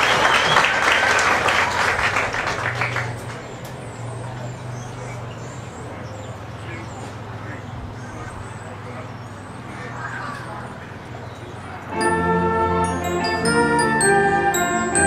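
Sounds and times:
audience applause: 0.0 - 3.5.

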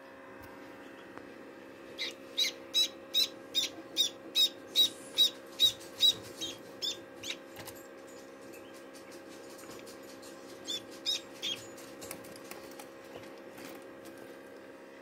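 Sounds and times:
egg incubator humming: 0.0 - 15.0
duckling peeping: 2.0 - 7.4, 10.6 - 11.6.

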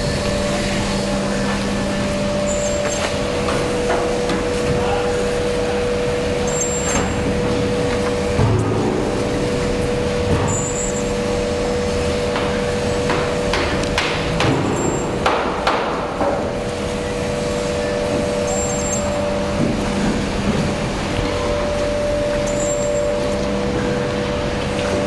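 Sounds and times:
steady mechanical hum: 0.0 - 25.0.

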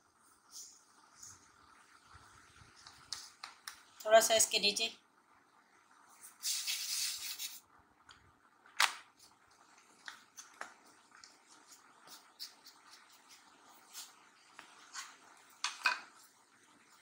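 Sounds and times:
rustle of dough: 9.1 - 17.0.

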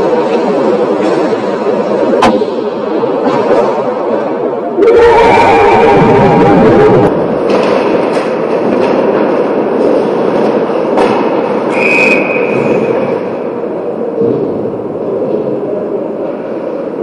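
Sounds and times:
hockey sticks and puck clacking: 7.4 - 13.4.

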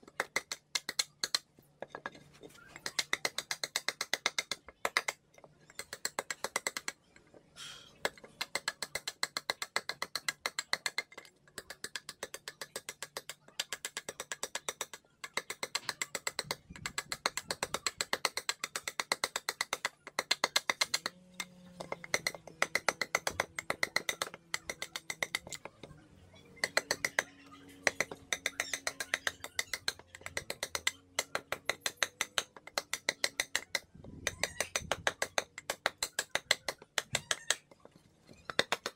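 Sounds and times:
carving blade scraping wood: 15.6 - 25.9.

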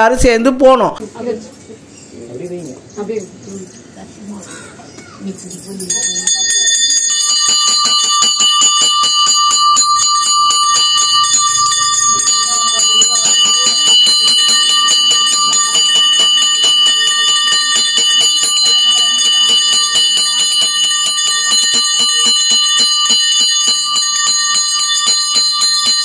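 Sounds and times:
hand bell rung rapidly: 5.3 - 26.0.

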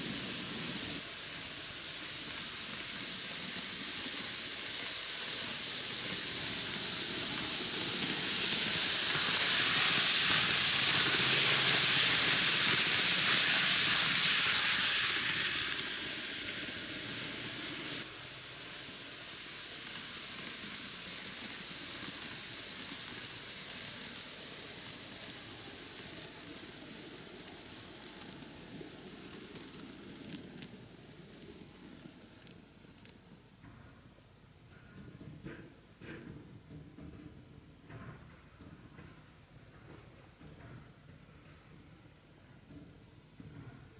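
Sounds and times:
model train running on track: 0.0 - 33.5.

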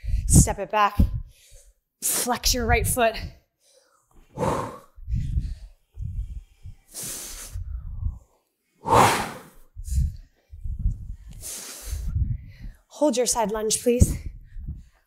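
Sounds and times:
woman breathing hard: 3.6 - 12.9.

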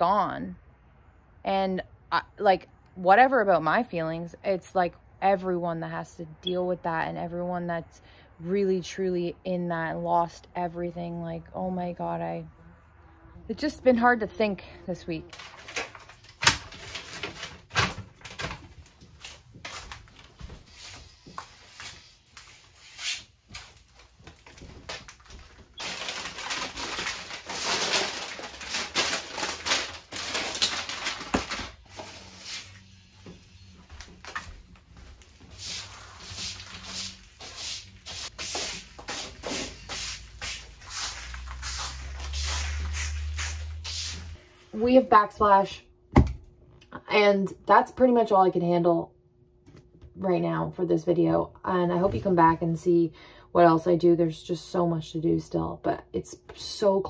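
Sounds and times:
tiles and cardboard set on countertop: 31.6 - 45.1.

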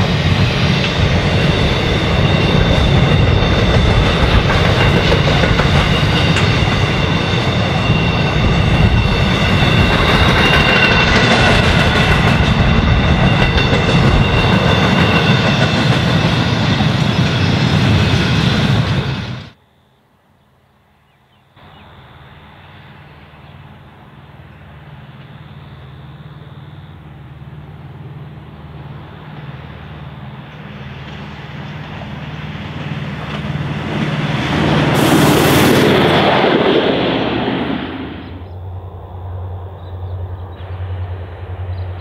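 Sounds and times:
wheel-on-rail noise: 0.0 - 19.6, 21.0 - 42.0
diesel railcar engine hum: 0.0 - 42.0.

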